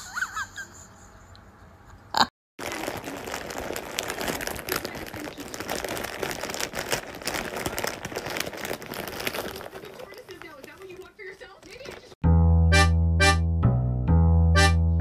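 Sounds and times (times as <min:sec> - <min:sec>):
foil bag crinkling: 0:02.6 - 0:12.2.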